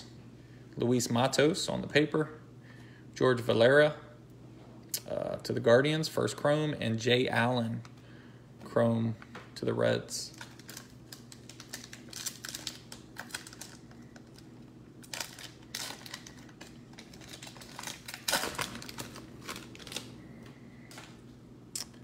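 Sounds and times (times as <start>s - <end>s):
faint low hum: 0.0s - 22.0s
wrapper crinkling and tearing: 10.2s - 20.3s.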